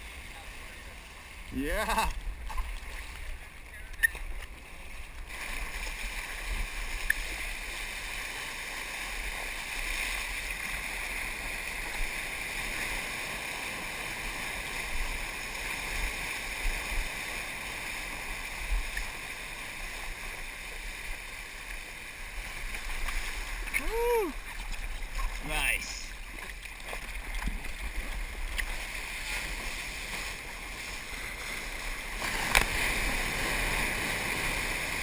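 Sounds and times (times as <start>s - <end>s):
water rushing past surfboard: 0.0s - 35.0s.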